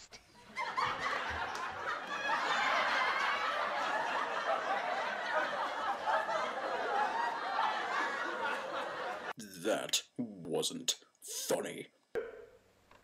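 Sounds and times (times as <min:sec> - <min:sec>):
audience laughing: 0:00.4 - 0:09.4.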